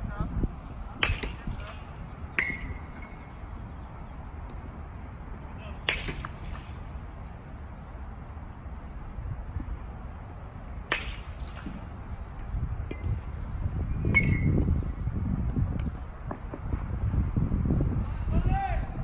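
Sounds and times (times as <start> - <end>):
wind rumble on microphone: 0.0 - 19.0
bat cracking a baseball: 1.0 - 3.1, 5.8 - 6.8, 10.8 - 13.2.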